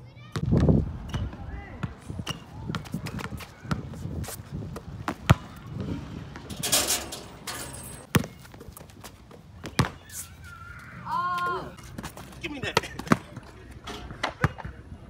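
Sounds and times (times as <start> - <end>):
basketball bouncing: 0.4 - 4.1, 4.7 - 8.4.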